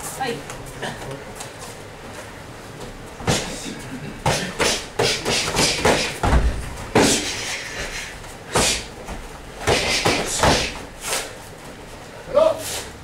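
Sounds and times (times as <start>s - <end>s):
punches and kicks thudding: 4.3s - 7.3s, 9.6s - 10.8s.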